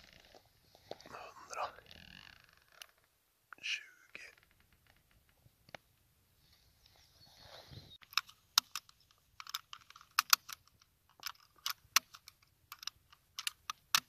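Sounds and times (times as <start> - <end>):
sharp mechanical clicks: 11.2 - 14.0.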